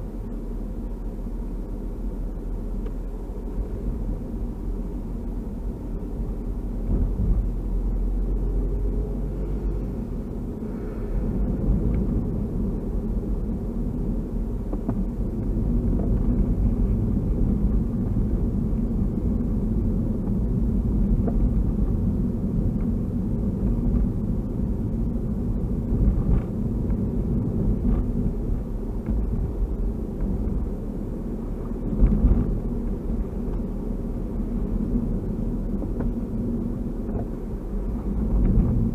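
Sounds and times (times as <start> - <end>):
car engine and tyre rumble: 0.0 - 38.9.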